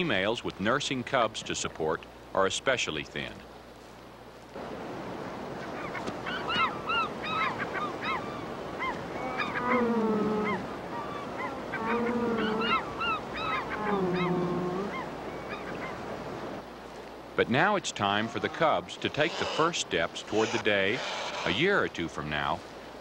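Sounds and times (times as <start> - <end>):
gulls calling: 5.5 - 16.2, 17.4 - 22.5
long low gull calls: 5.6 - 16.0, 18.1 - 21.7.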